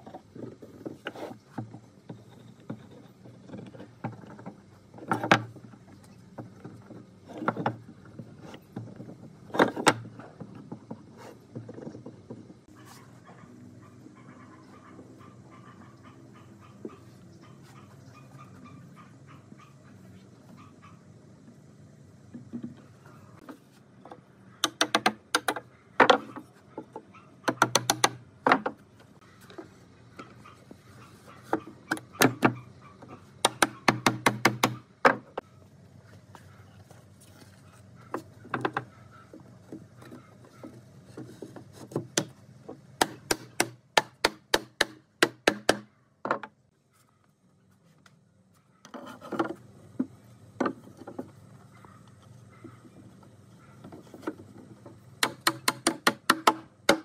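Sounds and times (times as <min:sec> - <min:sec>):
sharp wooden knocks: 0:24.6 - 0:26.4, 0:27.4 - 0:28.8, 0:31.5 - 0:32.6, 0:33.4 - 0:35.4, 0:41.9 - 0:46.6, 0:55.2 - 0:57.0.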